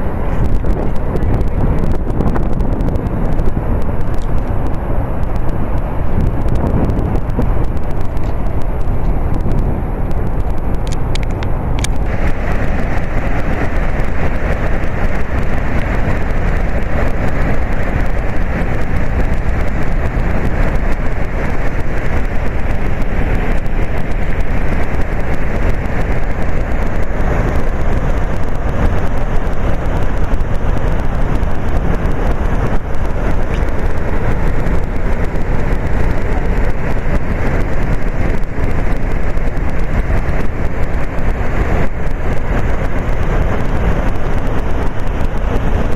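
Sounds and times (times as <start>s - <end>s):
waterfall rushing: 11.9s - 29.4s.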